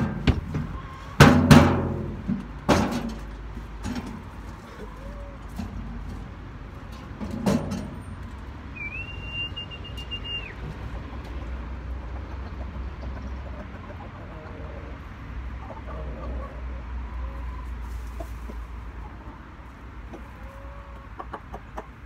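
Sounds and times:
high whistle-like tone: 8.8s - 10.6s.

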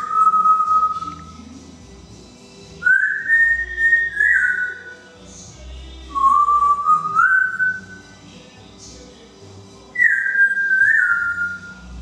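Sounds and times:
parrot whistling: 0.0s - 1.3s, 2.8s - 5.0s, 6.1s - 8.0s, 10.0s - 11.8s.

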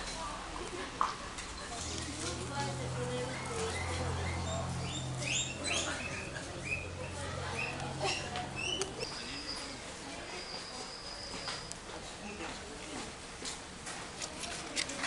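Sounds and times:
small animals chirping: 3.3s - 9.7s.

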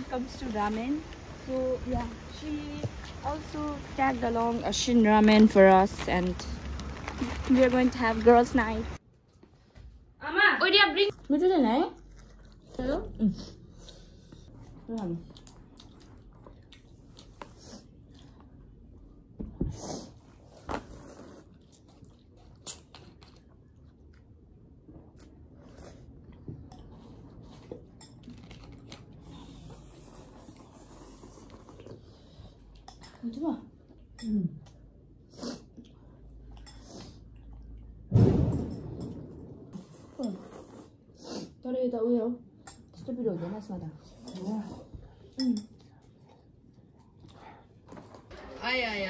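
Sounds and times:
people chewing noodles: 11.1s - 38.1s, 39.7s - 41.6s, 42.7s - 48.4s
wet eating sounds: 11.1s - 38.1s, 39.1s - 41.6s
slurping noodles: 19.7s - 21.8s, 29.2s - 32.4s, 39.8s - 41.6s
loud low thump: 38.1s - 39.7s.

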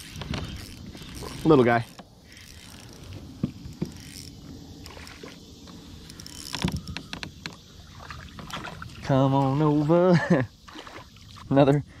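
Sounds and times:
fishing reel gear whirring: 0.0s - 7.7s.

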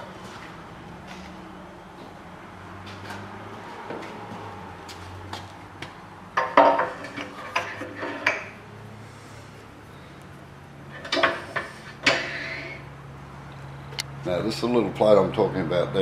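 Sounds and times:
metal clanking and scraping: 6.4s - 8.6s, 10.9s - 12.9s.

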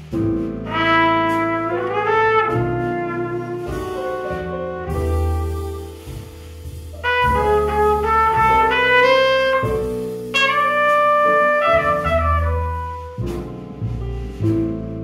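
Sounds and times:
jazz trumpet ballad melody: 0.0s - 15.0s
upright bass and band: 0.0s - 15.0s.

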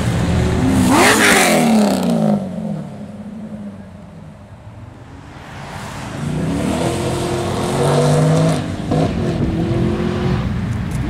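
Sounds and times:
car accelerating hard: 0.2s - 2.8s, 5.6s - 10.6s.

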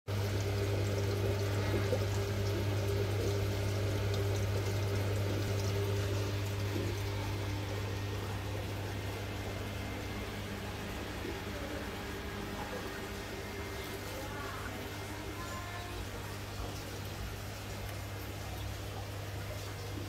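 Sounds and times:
pump humming: 0.1s - 20.0s.

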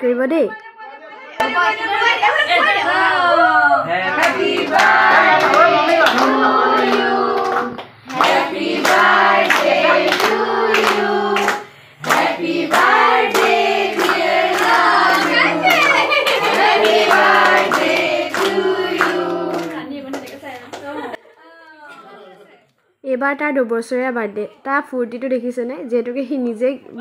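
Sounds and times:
group singing a celebration song: 1.4s - 20.4s.

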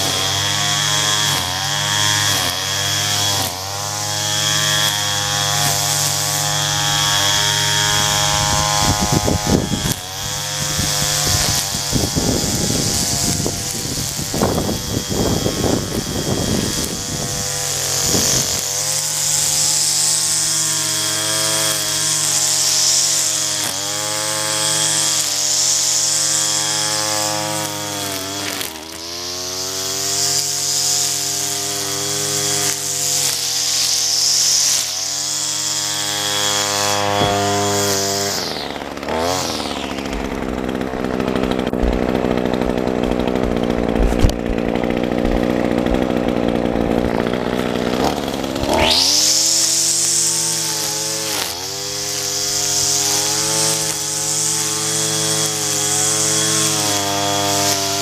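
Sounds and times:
string trimmer cutting grass: 0.0s - 58.0s.

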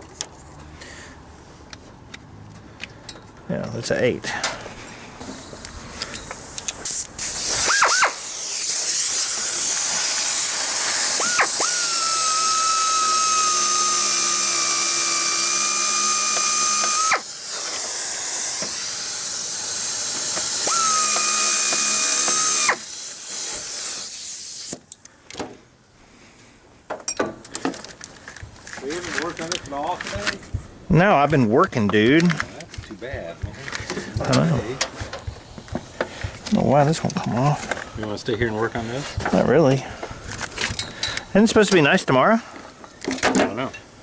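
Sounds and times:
cordless power driver whining: 7.3s - 22.9s.

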